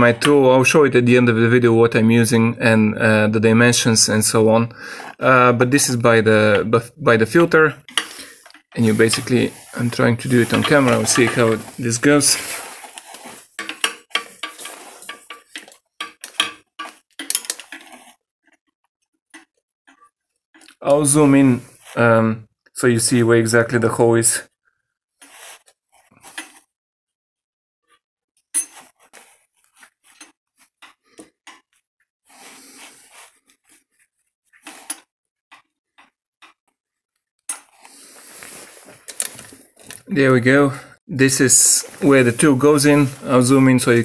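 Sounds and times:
metal rod clinking and scraping: 0:07.9 - 0:18.2, 0:26.2 - 0:26.6, 0:28.6 - 0:29.2, 0:29.8 - 0:30.4, 0:34.6 - 0:35.0
metal rod clicking and tapping: 0:13.6 - 0:17.8.

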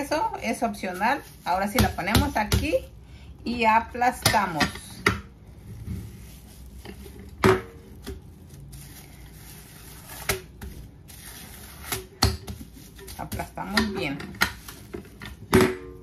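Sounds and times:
plastic sheet rustling: 0:00.0 - 0:02.8, 0:05.5 - 0:12.0.

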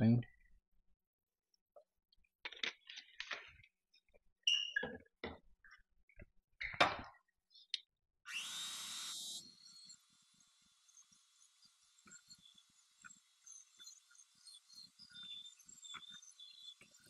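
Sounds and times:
electric hand mixer whine: 0:08.3 - 0:17.0.

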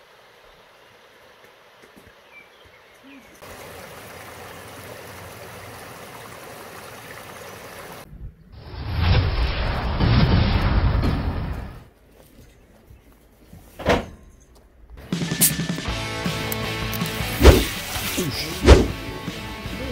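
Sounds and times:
stream running over rocks: 0:00.0 - 0:08.1.

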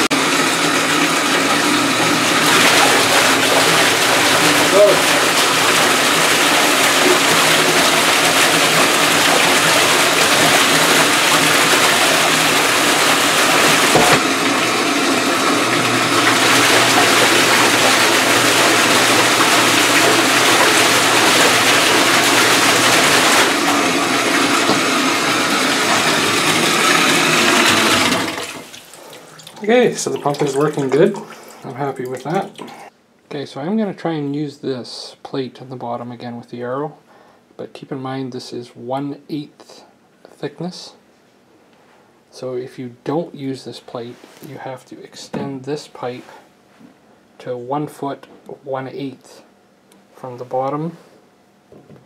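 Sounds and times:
sump pump running: 0:00.0 - 0:32.9
water splashing into bathtub: 0:00.0 - 0:32.9.

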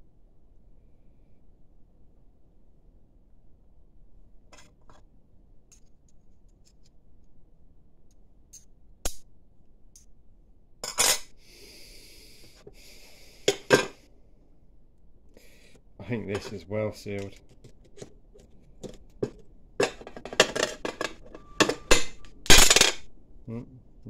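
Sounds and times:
metal parts clicking and clinking: 0:16.4 - 0:23.1.

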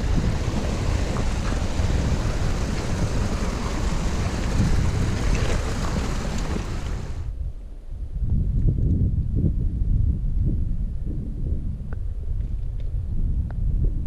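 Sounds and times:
stream splashing over rocks: 0:00.0 - 0:07.3
wind buffeting microphone: 0:00.0 - 0:14.0.

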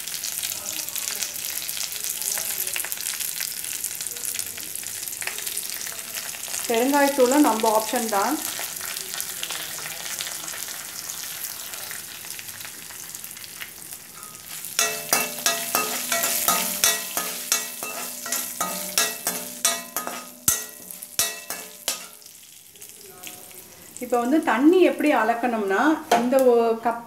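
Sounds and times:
hot oil sizzling: 0:00.0 - 0:27.0
metal spatula scraping a pan: 0:14.1 - 0:22.3.

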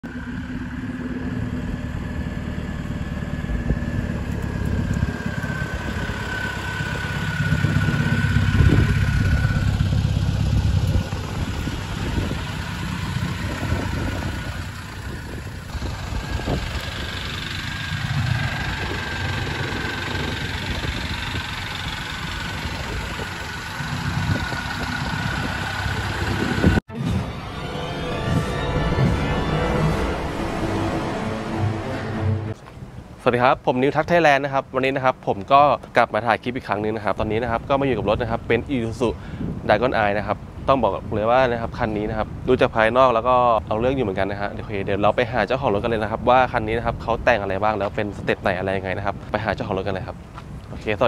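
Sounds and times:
pickup truck engine running: 0:00.0 - 0:26.8.

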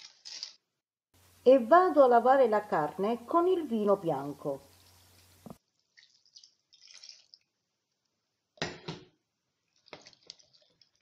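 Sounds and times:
wet splashing and dripping: 0:05.1 - 0:08.1, 0:09.7 - 0:11.0.

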